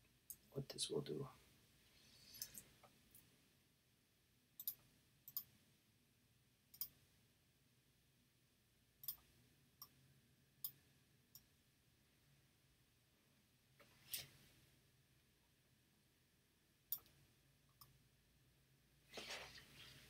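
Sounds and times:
computer mouse clicking: 2.3 - 3.2, 4.6 - 5.5, 6.7 - 7.0, 9.0 - 10.0, 16.9 - 18.0.

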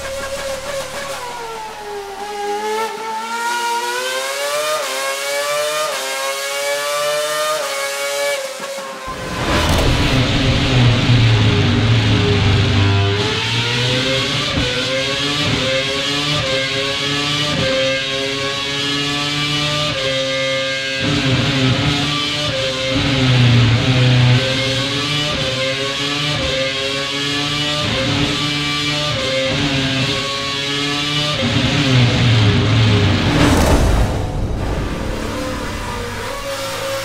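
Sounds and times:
racing engine at high revs: 0.0 - 37.0.

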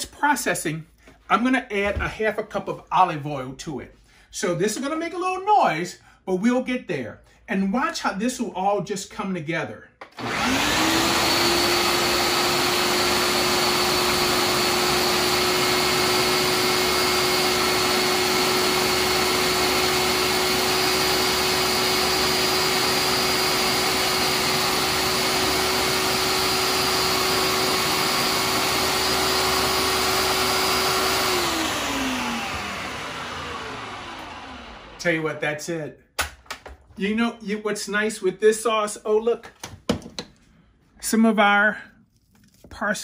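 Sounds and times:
food processor motor whining: 10.0 - 35.0.

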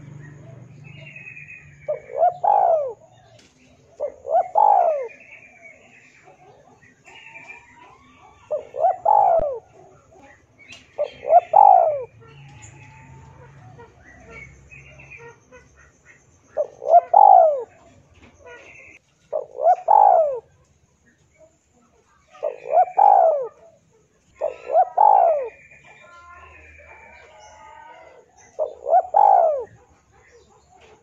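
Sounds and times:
dove cooing: 0.0 - 15.9, 16.5 - 31.0.

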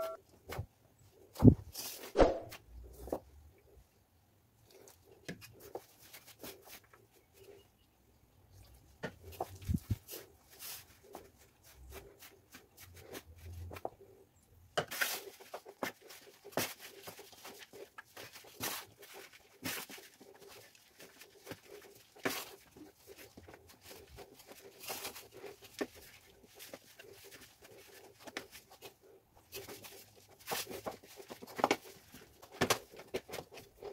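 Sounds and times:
hands kneading dough in metal bowl: 8.6 - 33.9.

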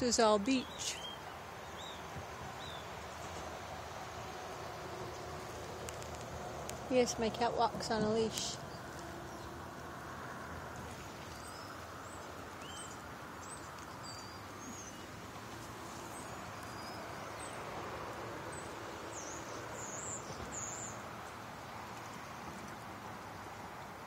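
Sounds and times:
river rushing: 8.6 - 24.0
birds chirping and whistling: 11.3 - 15.1, 16.1 - 17.6, 19.1 - 21.0.

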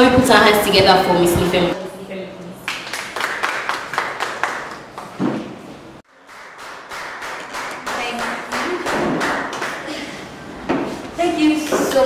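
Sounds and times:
people clapping: 2.6 - 10.2.

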